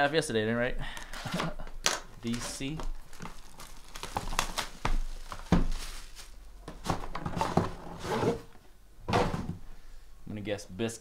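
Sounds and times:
plastic wrap crinkling and tearing: 2.2 - 7.1.

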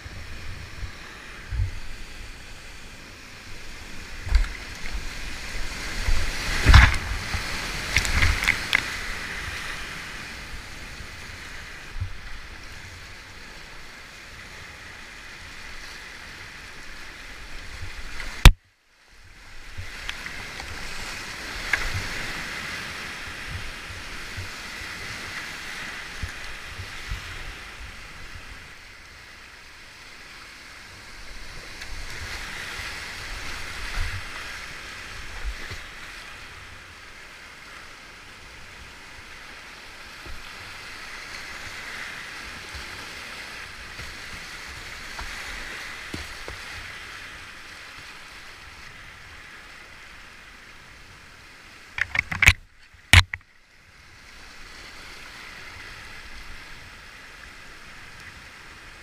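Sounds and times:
whitewater rapid rushing: 0.0 - 18.5
paddle splashes and knocks: 4.2 - 9.2, 41.5 - 47.0, 51.9 - 53.5
sharp click: 52.0 - 53.4.

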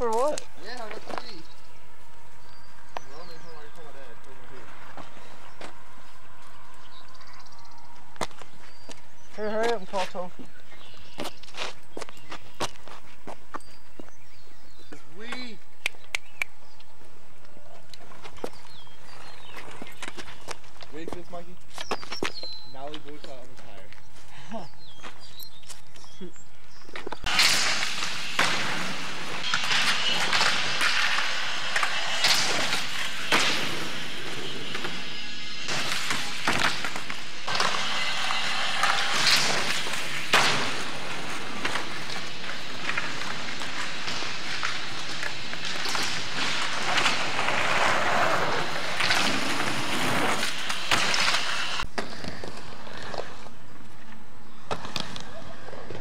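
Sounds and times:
skateboard wheels rolling: 26.9 - 56.0.

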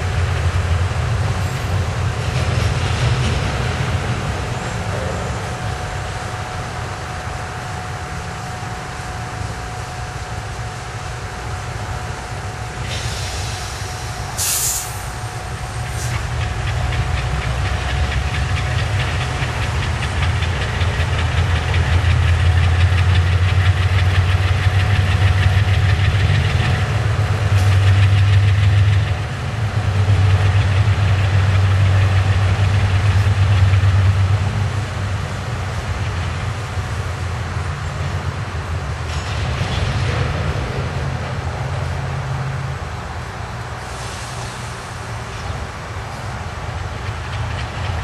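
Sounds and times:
diesel locomotive engine rumbling: 0.0 - 48.0
air hissing burst: 12.8 - 16.3, 43.8 - 44.9.

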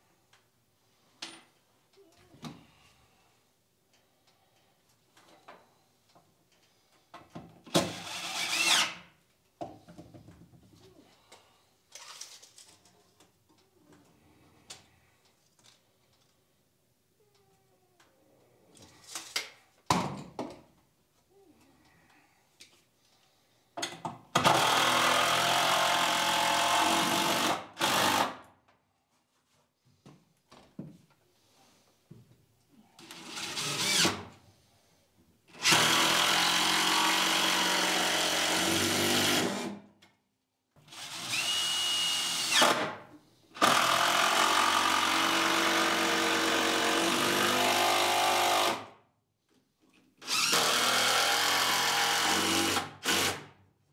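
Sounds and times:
cordless drill driving fasteners: 7.7 - 9.0, 24.4 - 28.4, 33.0 - 34.2, 35.5 - 39.7, 40.9 - 42.9, 43.6 - 48.8, 50.2 - 53.5.

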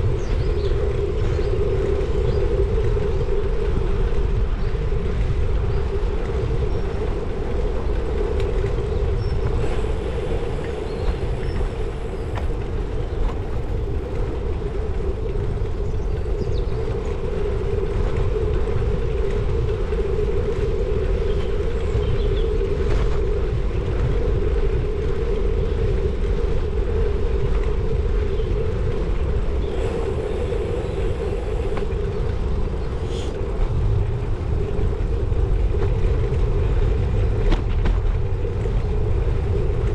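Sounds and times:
bicycle rolling on tarmac: 0.0 - 39.9
wind on microphone: 0.0 - 39.9.

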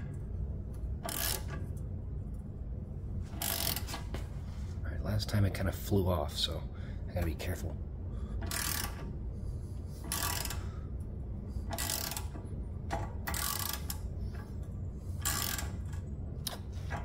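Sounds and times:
ratchet wrench clicking: 1.0 - 1.6, 3.3 - 4.0, 8.4 - 9.1, 10.0 - 10.6, 11.7 - 14.5, 15.2 - 16.6.

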